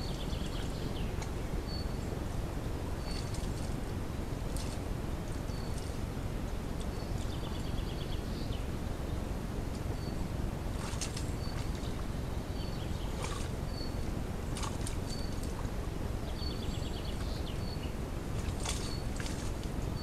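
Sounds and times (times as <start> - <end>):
birds whistling and trilling: 0.0 - 2.1, 3.0 - 3.7, 9.9 - 20.0
low rumbling background noise: 0.0 - 20.0.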